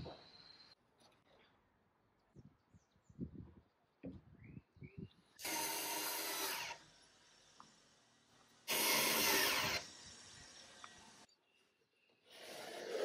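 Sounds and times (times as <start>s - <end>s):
power drill running: 5.4s - 6.9s, 8.7s - 10.8s.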